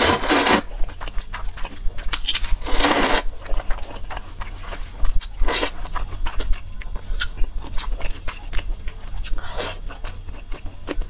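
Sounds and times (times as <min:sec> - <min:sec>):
noodle slurping: 0:00.0 - 0:00.7, 0:02.3 - 0:03.3.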